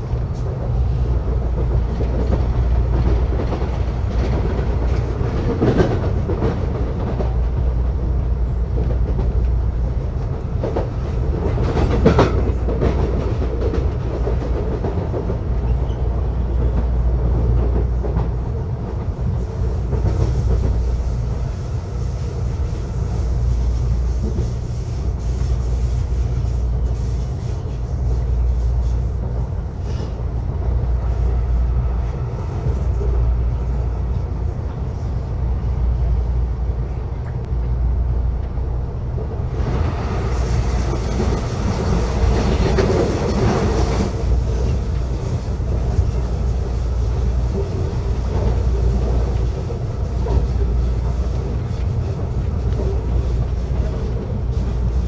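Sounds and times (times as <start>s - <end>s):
train wheels and motors rumbling: 0.0s - 55.0s.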